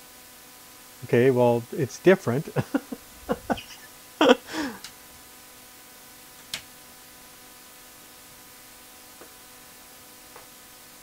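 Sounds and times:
faint hum and hiss: 0.0s - 11.0s.

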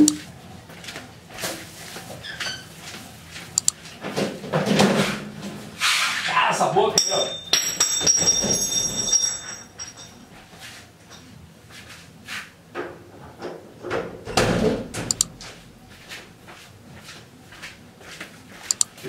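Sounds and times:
sharp clicks: 3.6s - 3.8s, 18.7s - 18.9s
doors and cupboards clattering: 4.0s - 5.6s, 7.0s - 10.3s, 12.8s - 15.6s.

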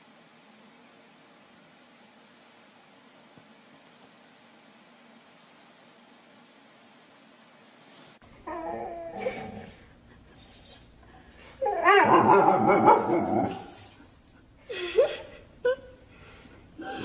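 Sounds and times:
dog barking and whining: 8.4s - 13.9s.

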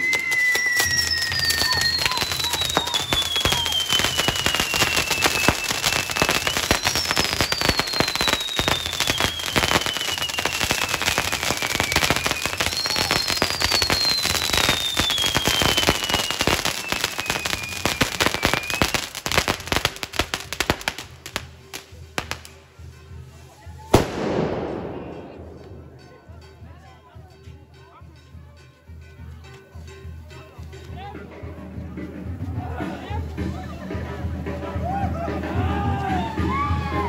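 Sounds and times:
whistling fireworks: 0.0s - 22.6s, 23.7s - 26.2s
fireworks crackling: 0.0s - 26.6s, 32.1s - 37.0s.

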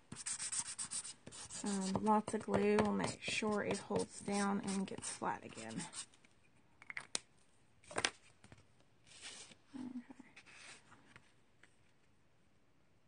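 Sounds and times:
paper rustling: 7.9s - 9.6s.

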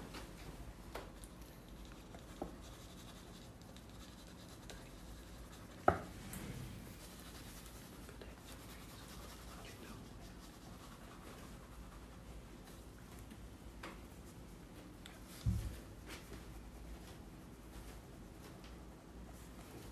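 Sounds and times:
crayons scratching on paper: 1.6s - 5.8s.

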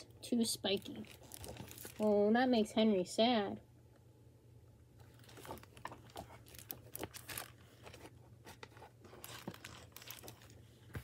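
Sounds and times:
plastic book jacket crinkling: 0.6s - 2.2s, 5.0s - 11.0s.

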